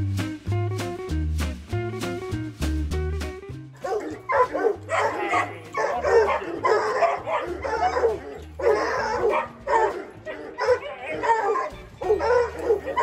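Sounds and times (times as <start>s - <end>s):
background music with bass line: 0.0s - 13.0s
dog barking and yelping: 3.8s - 13.0s.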